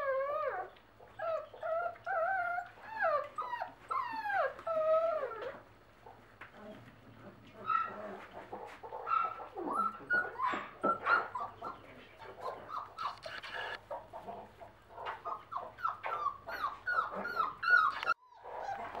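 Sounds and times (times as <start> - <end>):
puppies whimpering and yipping: 0.0 - 5.7, 6.6 - 19.0
clicks and rustles: 13.0 - 13.8.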